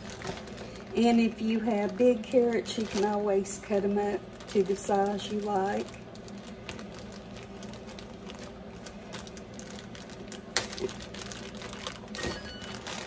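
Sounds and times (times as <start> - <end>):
faint steady hum: 0.0 - 13.0
plastic bag crinkling: 0.0 - 13.0.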